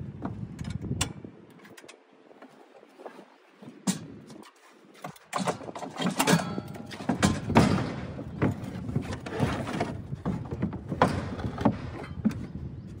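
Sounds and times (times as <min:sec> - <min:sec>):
irregular knocks and thumps: 0:05.0 - 0:12.7.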